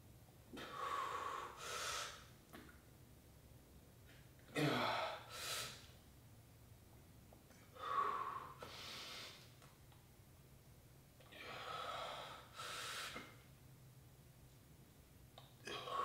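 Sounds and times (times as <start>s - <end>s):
man breathing hard: 0.6s - 2.3s, 4.6s - 5.9s, 7.7s - 9.5s, 11.3s - 13.4s.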